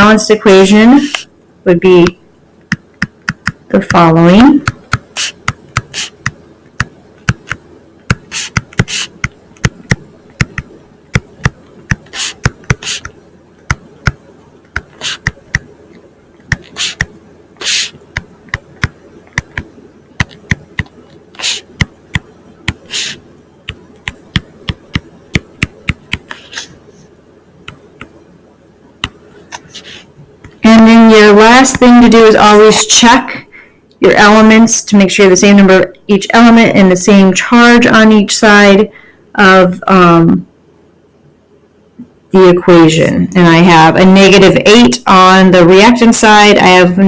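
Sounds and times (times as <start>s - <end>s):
faint steady hum: 0.0s - 47.0s
stylus tapping and scratching on screen: 1.0s - 1.3s, 2.0s - 28.2s, 29.0s - 30.7s.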